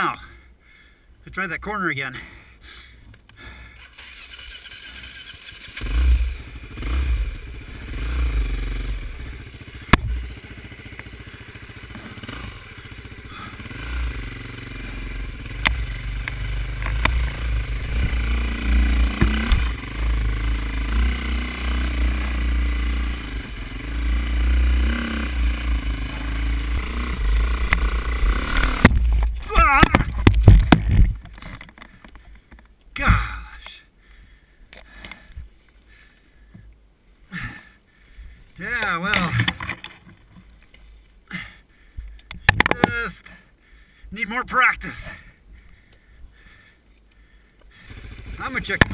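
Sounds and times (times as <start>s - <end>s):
dirt bike engine revving: 3.7s - 31.3s, 47.7s - 48.9s.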